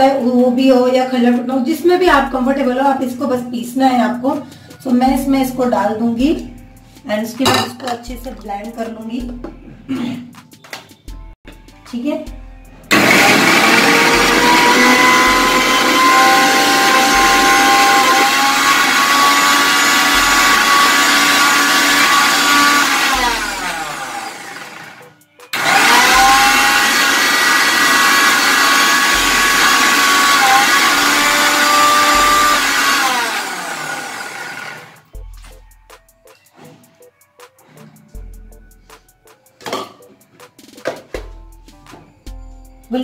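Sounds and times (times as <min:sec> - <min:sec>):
mixer grinder motor whine: 0:12.9 - 0:35.1.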